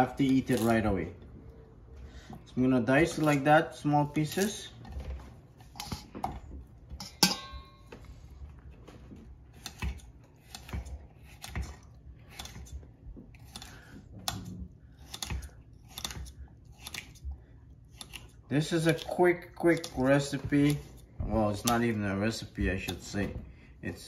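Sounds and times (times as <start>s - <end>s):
sharp ringing clink: 7.1s - 7.9s.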